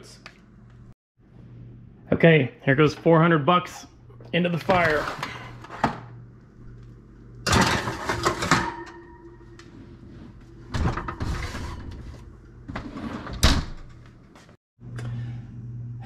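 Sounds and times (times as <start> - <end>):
tray scraping on oven rack: 4.5 - 6.0, 7.5 - 14.0
metal tray clattering on rack: 7.4 - 9.2
oven door opening: 10.6 - 14.0.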